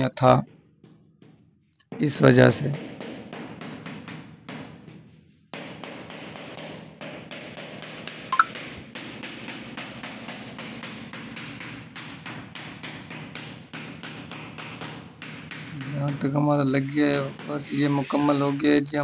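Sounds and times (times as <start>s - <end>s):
rubber mallet tapping tile: 0.5s - 19.0s.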